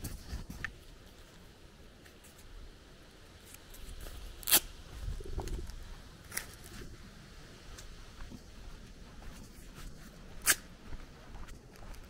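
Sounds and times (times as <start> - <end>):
footsteps on dirt path: 0.0 - 1.4, 3.7 - 12.0.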